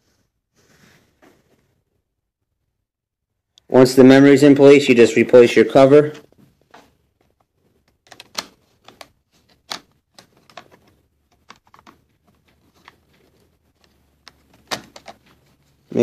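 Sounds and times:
plastic clicks and taps: 0:06.7 - 0:13.1, 0:13.8 - 0:15.4.

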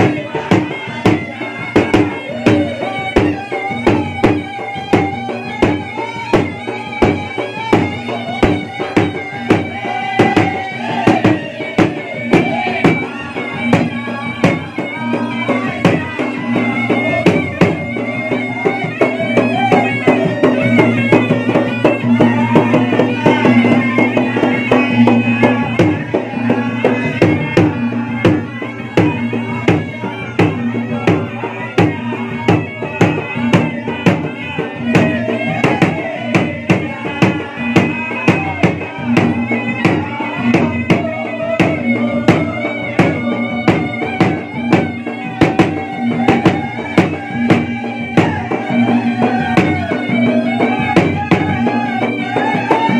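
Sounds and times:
barrel drums beaten fast: 0:00.0 - 0:52.9
blown pipe melody: 0:00.0 - 0:52.9.

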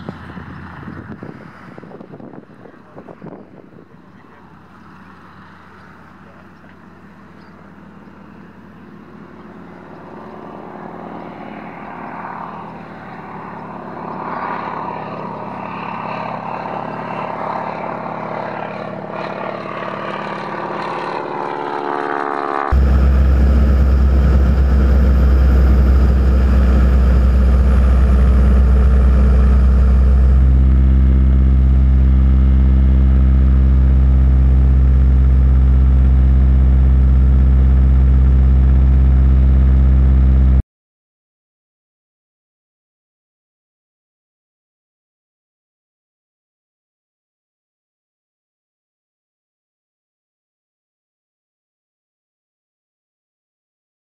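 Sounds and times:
loud low engine drone: 0:00.0 - 0:40.6
model aircraft engine: 0:00.0 - 0:40.6.

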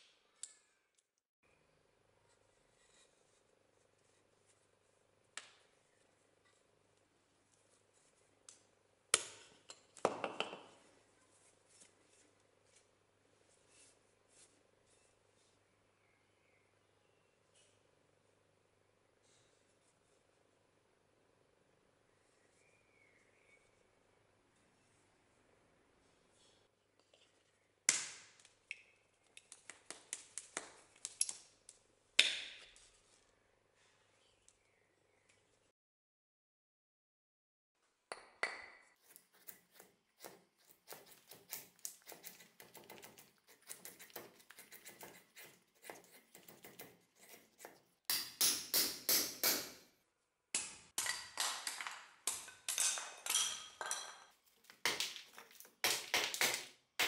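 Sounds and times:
faint rustle of handling: 0:02.2 - 0:08.5, 0:10.8 - 0:15.7, 0:19.2 - 0:20.7, 0:32.7 - 0:35.7.

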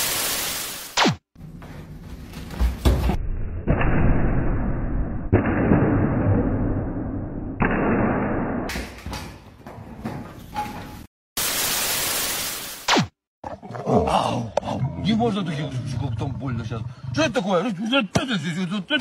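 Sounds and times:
static hiss: 0:00.0 - 0:01.1, 0:11.4 - 0:13.1.

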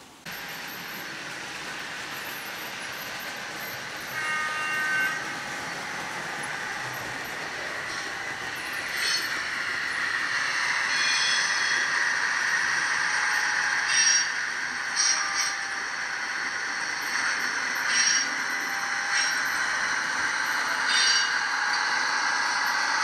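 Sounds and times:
train horn: 0:04.1 - 0:05.5.

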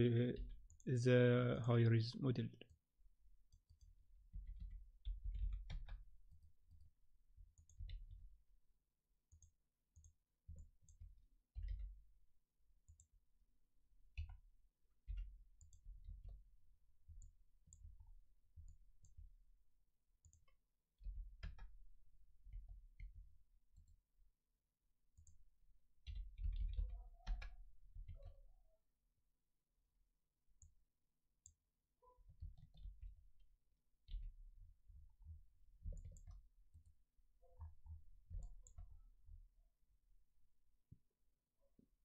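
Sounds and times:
computer mouse clicks: 0:03.5 - 0:06.9, 0:15.0 - 0:16.4, 0:20.2 - 0:21.8, 0:26.0 - 0:28.4, 0:31.4 - 0:33.2, 0:34.0 - 0:36.9, 0:37.6 - 0:38.9.

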